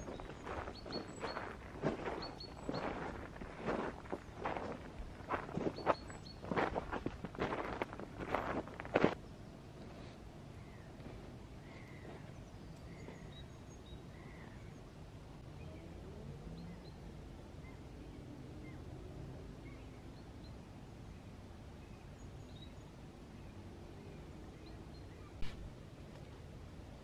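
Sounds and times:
small birds chirping: 0:00.0 - 0:19.0
sharp click: 0:25.4 - 0:25.7.

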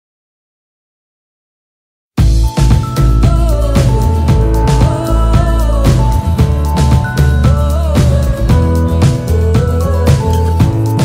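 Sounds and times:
music with steady beat and heavy bass: 0:02.2 - 0:11.0.

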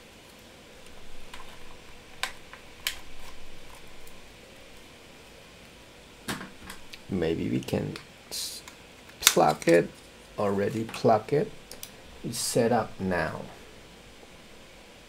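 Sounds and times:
soft rustling handling noise: 0:06.5 - 0:14.4.

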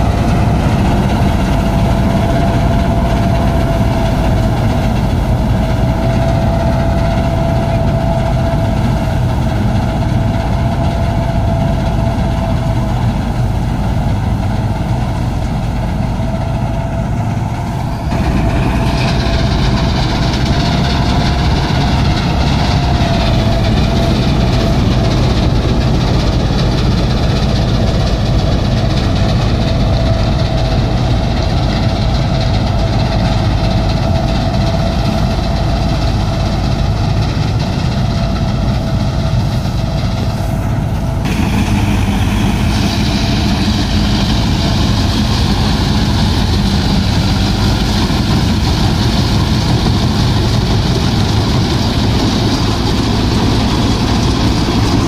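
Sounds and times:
diesel engine running under load: 0:00.0 - 0:55.0
steady mechanical whine: 0:00.0 - 0:55.0.

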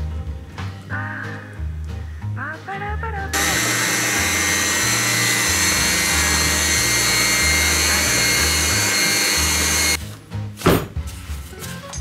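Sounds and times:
electric hand mixer whirring: 0:03.4 - 0:10.0.

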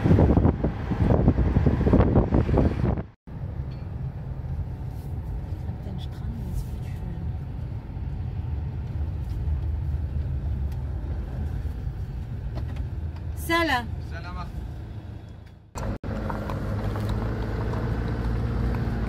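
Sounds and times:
engine and tyre rumble: 0:00.0 - 0:19.0.

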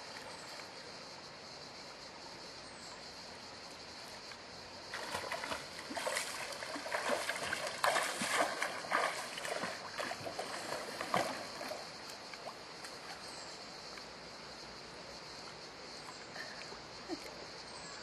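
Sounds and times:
flowing water rushing: 0:04.9 - 0:13.2
water splashing from swimming strokes: 0:04.9 - 0:13.2.

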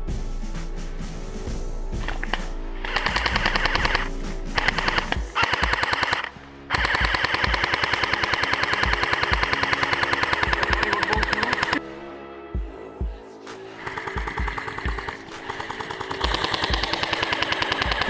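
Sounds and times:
background music: 0:00.0 - 0:18.0
airsoft rifle firing full auto: 0:02.0 - 0:11.8, 0:13.8 - 0:18.0.

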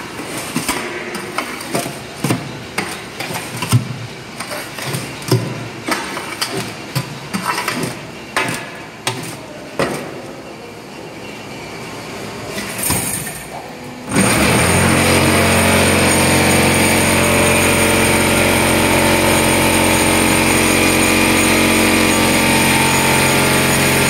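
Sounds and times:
steady machine noise: 0:13.8 - 0:24.0.

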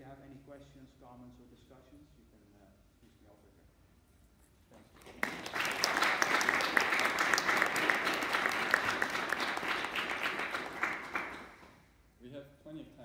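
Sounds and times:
audience applauding: 0:05.0 - 0:11.8.

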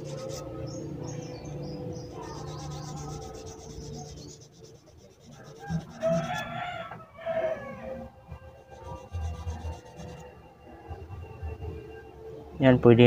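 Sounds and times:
brush scraping on sandpaper: 0:00.0 - 0:00.5, 0:02.1 - 0:06.5, 0:08.4 - 0:10.2
rooster crowing: 0:05.3 - 0:10.2.

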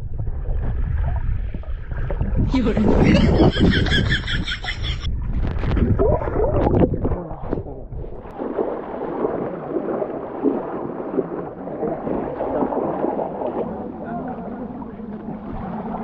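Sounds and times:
water bubbling and churning: 0:00.0 - 0:16.0
feet wading through water: 0:08.2 - 0:16.0.

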